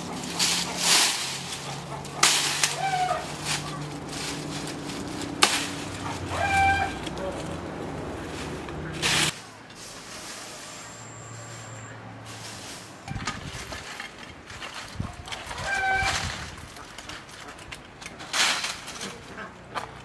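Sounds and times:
chicken calling: 0.0 - 9.3
twigs cracking: 0.0 - 9.4
dry branches rustling and snapping: 0.0 - 10.4, 12.4 - 20.0.

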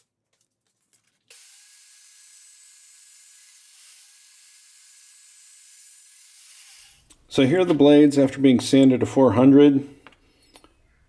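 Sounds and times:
bandsaw hissing and whining: 1.3 - 7.1.

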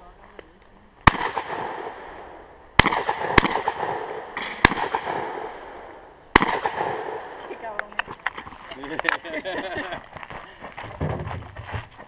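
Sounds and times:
rifle shots echoing: 1.0 - 8.0.

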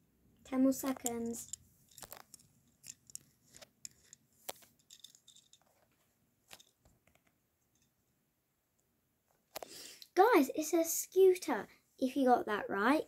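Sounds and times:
faint handling clicks and taps: 0.5 - 7.9.

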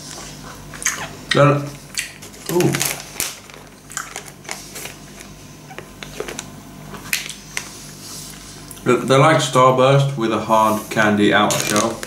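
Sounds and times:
candy wrapper crinkling: 2.3 - 5.3, 11.4 - 12.0.

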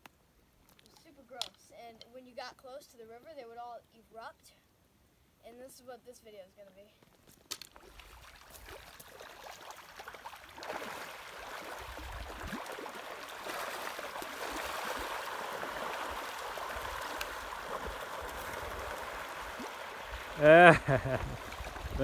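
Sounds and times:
river water rushing and splashing: 8.1 - 22.0.

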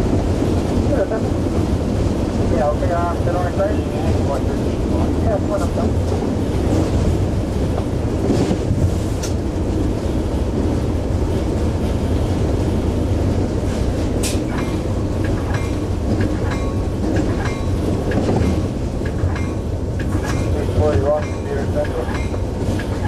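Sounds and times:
wheels clicking over rail joints: 14.1 - 23.0.

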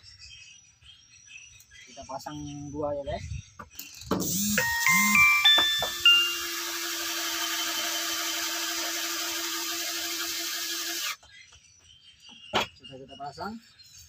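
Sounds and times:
electric drill driving screw into wood: 4.1 - 11.2.

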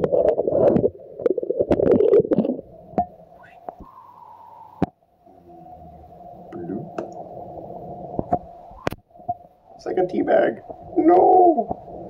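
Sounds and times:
muffled hum: 0.0 - 9.7.

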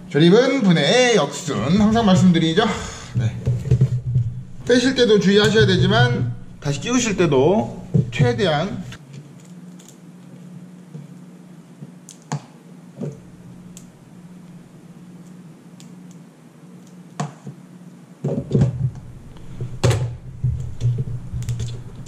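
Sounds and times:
steady low hum: 0.0 - 0.5, 1.3 - 9.0, 9.6 - 22.0
small clicks and rustling: 9.0 - 11.2.

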